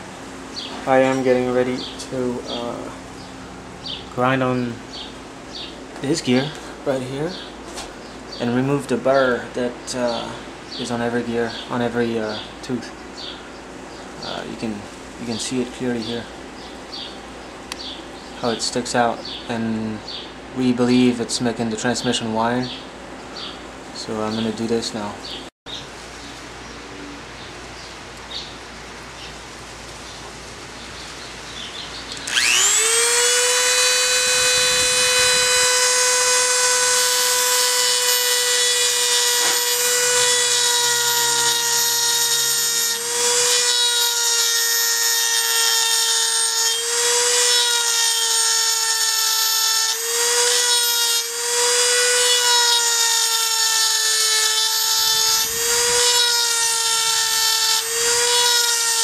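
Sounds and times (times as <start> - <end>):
rotary tool grinding metal: 32.2 - 59.0.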